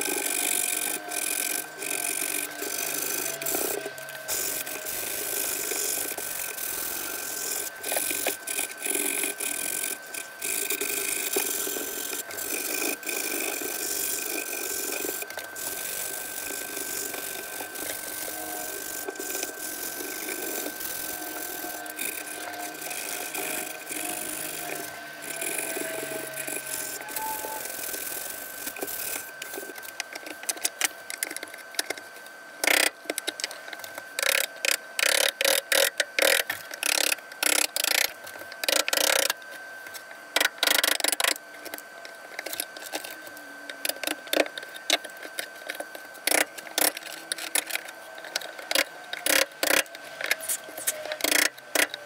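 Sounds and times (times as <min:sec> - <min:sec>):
faint high whine: 0:00.0 - 0:32.0
metal tool scraping wood: 0:00.1 - 0:29.2.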